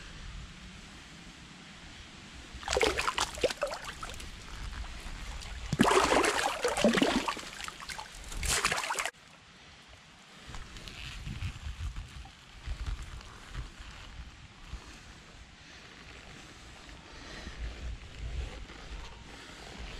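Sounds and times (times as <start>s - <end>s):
wet mud squelching: 2.6s - 9.1s.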